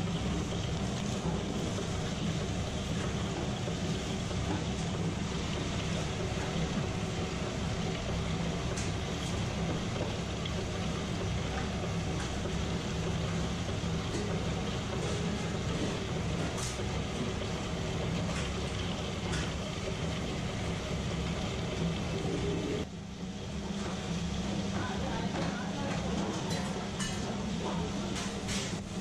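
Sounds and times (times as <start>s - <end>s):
wet grinder motor humming: 0.0s - 22.9s.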